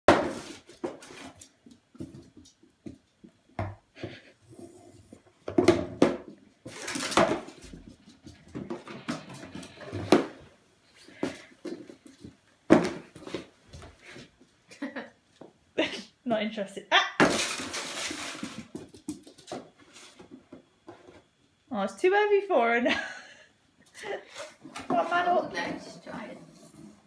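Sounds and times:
cardboard box scraping on floor: 0:17.5 - 0:18.7, 0:24.4 - 0:27.0.

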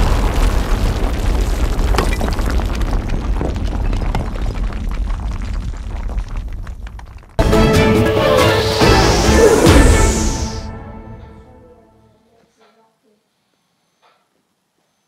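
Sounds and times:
explosion rumble with crackles: 0:00.0 - 0:07.4.

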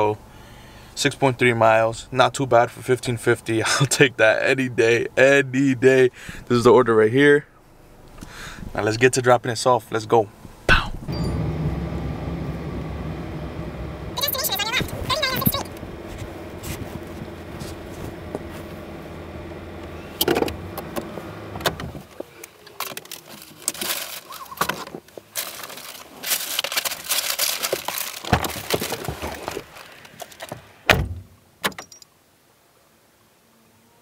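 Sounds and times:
car engine running: 0:10.4 - 0:22.3
car door shutting: 0:10.5 - 0:22.3, 0:30.4 - 0:31.9
bag rustling: 0:14.2 - 0:18.9, 0:22.1 - 0:30.6.

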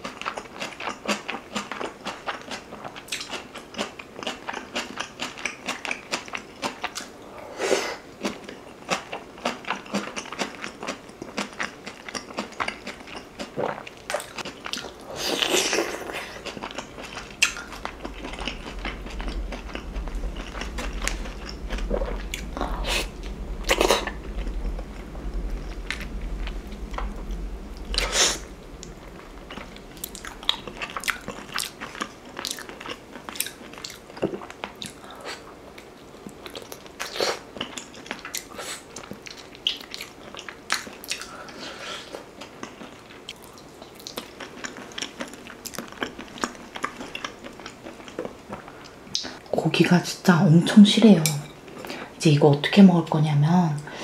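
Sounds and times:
chewing with wet mouth clicks: 0:00.0 - 0:07.1, 0:08.2 - 0:22.5, 0:36.2 - 0:41.4, 0:42.4 - 0:49.4.

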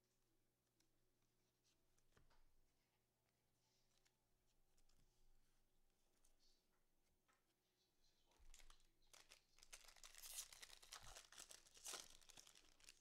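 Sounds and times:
foil wrapper crinkling and tearing: 0:08.5 - 0:13.0.

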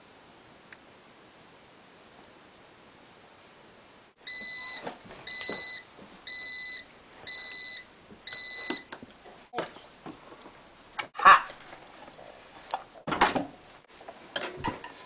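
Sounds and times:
bread machine beeping: 0:04.2 - 0:08.9.

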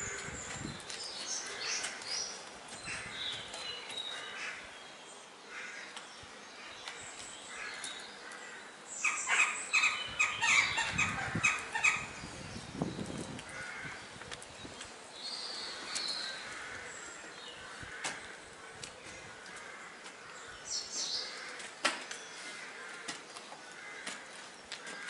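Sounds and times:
wild birds calling: 0:00.0 - 0:25.0
crows calling harshly: 0:01.4 - 0:04.7, 0:05.5 - 0:06.0, 0:07.5 - 0:12.2, 0:13.5 - 0:14.2, 0:15.6 - 0:25.0.

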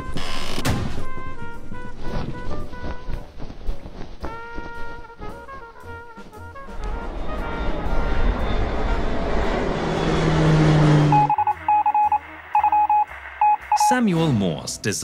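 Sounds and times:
jet engine rush: 0:06.7 - 0:11.4
morse code beeps: 0:11.1 - 0:14.1.

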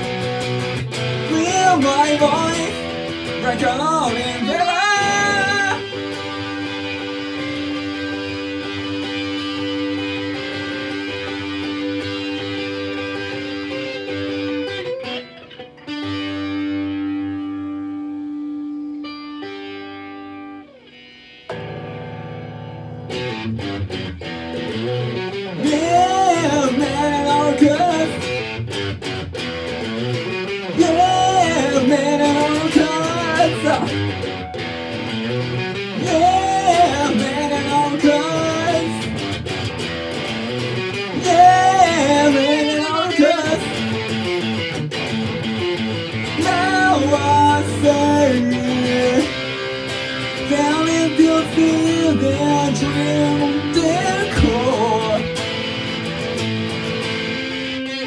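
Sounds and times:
electric guitar strumming: 0:00.0 - 0:58.0
man singing: 0:01.2 - 0:06.4, 0:25.4 - 0:28.6, 0:30.5 - 0:34.2, 0:35.8 - 0:39.2, 0:40.9 - 0:44.1, 0:46.2 - 0:55.4.

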